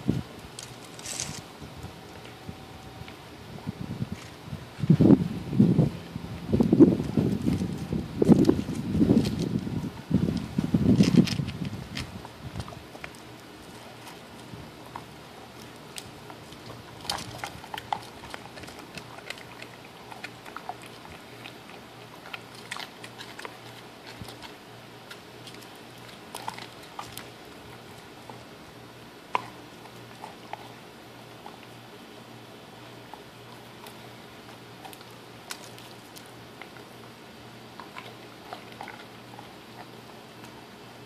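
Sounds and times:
dog gnawing a bone: 0.1s - 4.4s, 6.6s - 41.0s
teeth cracking on bone: 10.4s - 28.4s, 34.8s - 36.9s.

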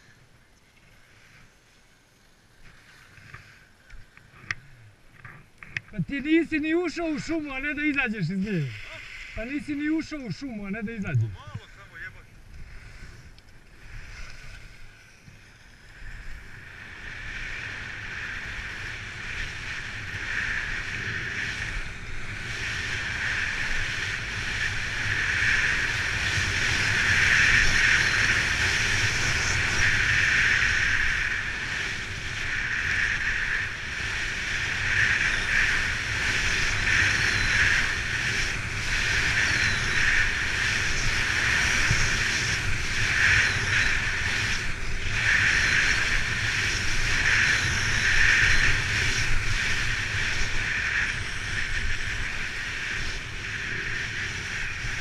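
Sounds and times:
wind rumbling on microphone: 2.5s - 55.0s
skis scraping over snow: 12.6s - 55.0s.

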